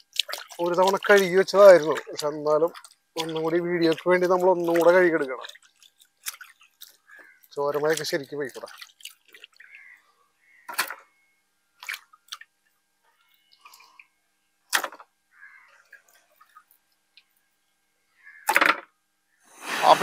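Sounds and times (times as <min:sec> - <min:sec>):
water dripping and splashing: 0:00.0 - 0:10.0, 0:11.8 - 0:12.7, 0:15.9 - 0:17.4
wet chicken slapping on metal: 0:00.1 - 0:06.9.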